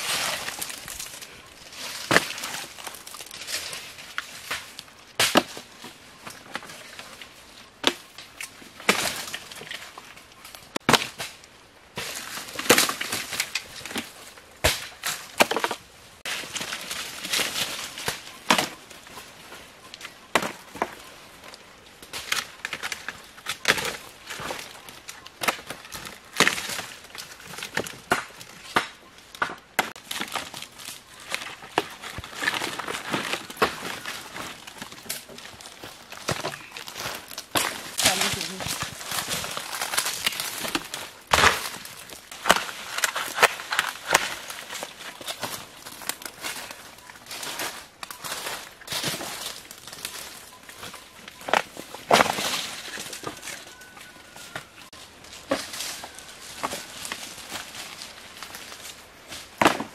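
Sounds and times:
dry undergrowth rustling: 0.0 - 59.9
dry palm stems snapping: 1.9 - 5.7, 12.1 - 18.8, 22.0 - 53.9.

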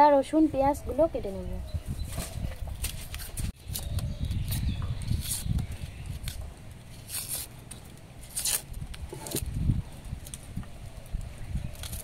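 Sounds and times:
onion skins crackling and tearing: 2.8 - 12.0.

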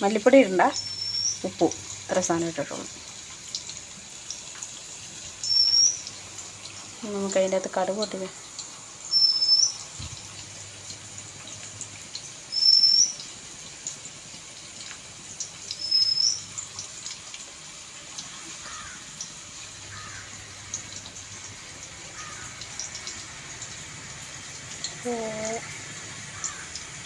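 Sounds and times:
faint steady hiss: 0.0 - 27.0
low sliding bird chirps: 0.8 - 1.4, 5.4 - 6.1, 9.2 - 9.8
bird whistling: 0.8 - 1.5, 5.4 - 6.1, 9.1 - 9.8, 12.5 - 13.2, 15.8 - 16.5.

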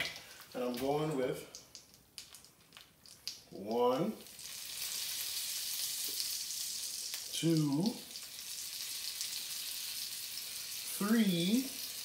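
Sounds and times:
butter and oil sizzling in skillet: 3.2 - 12.0.

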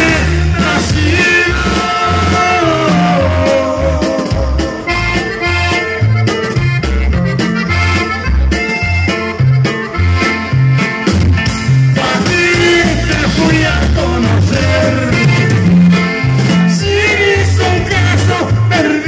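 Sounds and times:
man singing with vibrato: 0.0 - 5.9, 11.8 - 19.0
accordion band music: 0.0 - 19.0.

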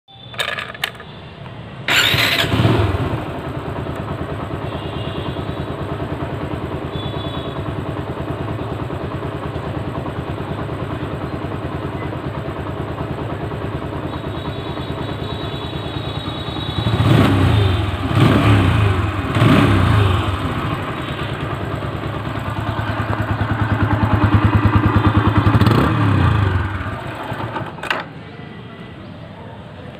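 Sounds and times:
motorcycle engine starting: 0.2 - 1.2, 1.8 - 28.4
motorcycle engine idling: 0.2 - 29.8
motorcycle engine revving: 1.9 - 28.0.

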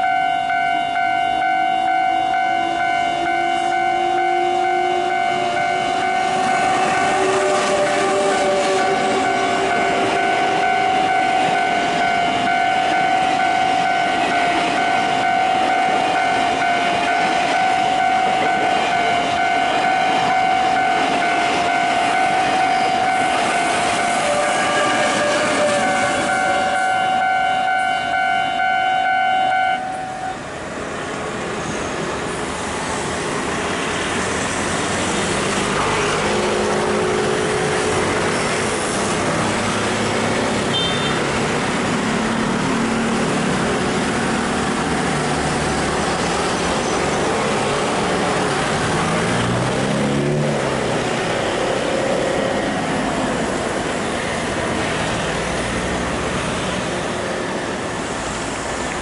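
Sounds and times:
level crossing bell ringing: 0.0 - 6.6
road traffic: 0.0 - 59.0
vehicle passing by: 34.2 - 57.6.

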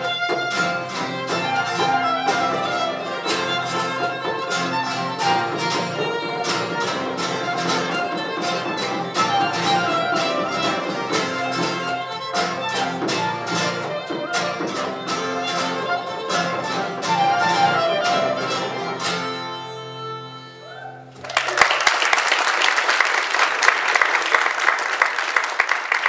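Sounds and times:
strummed acoustic guitars: 0.0 - 20.6
fiddles playing melody: 0.0 - 21.1.

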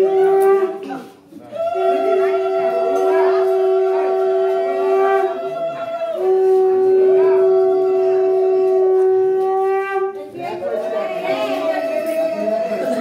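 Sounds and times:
conch shell blasts: 0.0 - 1.1, 1.8 - 10.2.

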